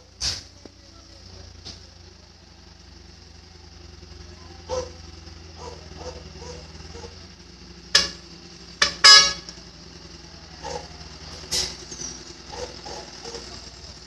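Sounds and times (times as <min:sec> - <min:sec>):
low engine hum: 0:00.0 - 0:14.0
vehicle horn toots: 0:07.9 - 0:09.6.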